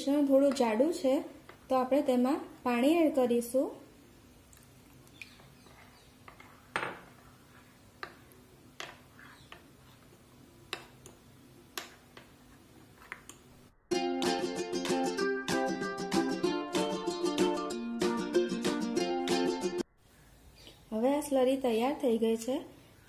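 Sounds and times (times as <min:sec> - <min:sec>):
ukulele-like music: 0:13.9 - 0:19.8.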